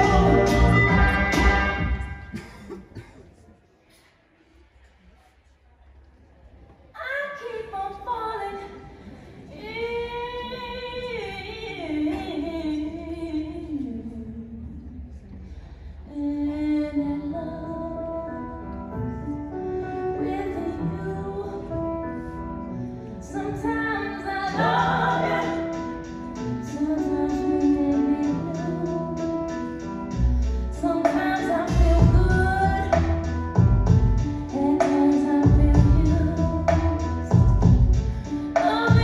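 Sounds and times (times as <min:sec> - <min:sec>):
sustained instrumental chords: 0:00.0 - 0:02.3.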